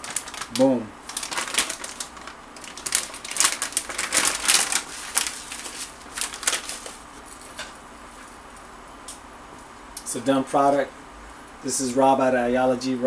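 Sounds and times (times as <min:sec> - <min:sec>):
plastic pouch crinkling: 0:00.0 - 0:07.7.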